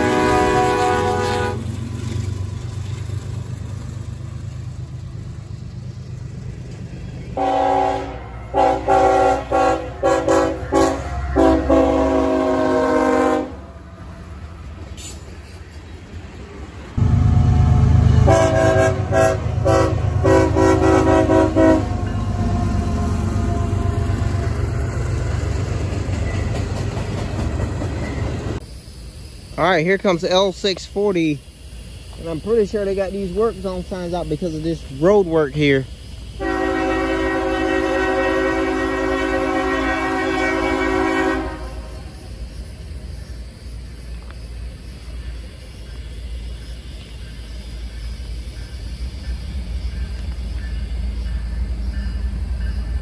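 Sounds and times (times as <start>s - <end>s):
locomotive air horn blast: 0.0s - 1.8s, 7.4s - 13.8s, 17.0s - 24.2s, 36.4s - 42.1s
locomotive engine rumbling: 0.0s - 53.0s
air horn short blasts: 17.3s - 22.0s.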